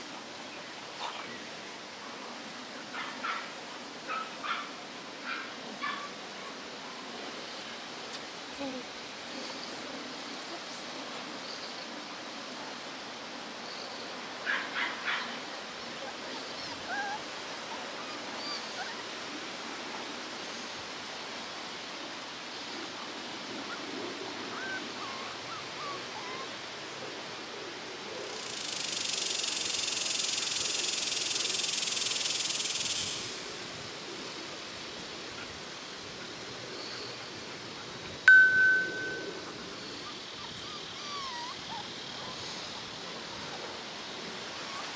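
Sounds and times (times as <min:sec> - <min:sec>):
outdoor background noise: 0:00.0 - 0:44.9
puppies yipping and squeaking: 0:16.3 - 0:19.1, 0:24.6 - 0:26.6, 0:38.3 - 0:43.6.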